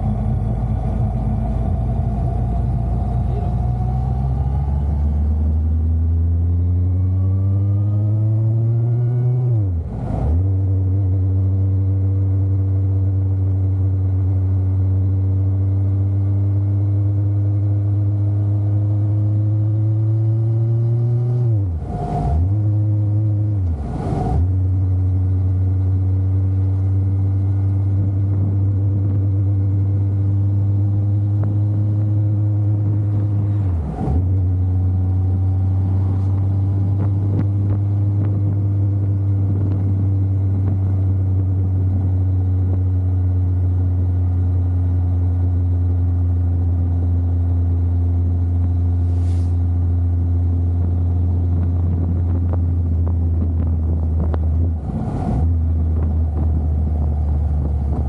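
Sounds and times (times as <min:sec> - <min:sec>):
motorcycle engine running: 0:24.5 - 0:49.1, 0:49.7 - 0:54.8, 0:55.4 - 0:58.0.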